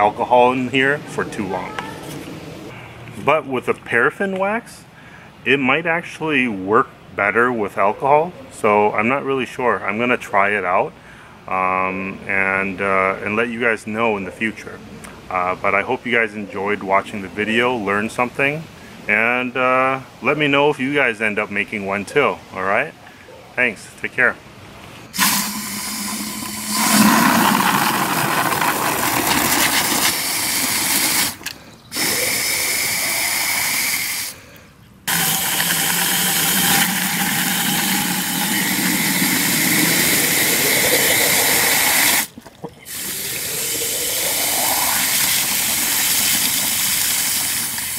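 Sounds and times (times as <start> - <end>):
water pouring into a gourd: 25.2 - 31.4, 35.1 - 42.3, 42.9 - 47.8
water splashing over: 25.2 - 31.4.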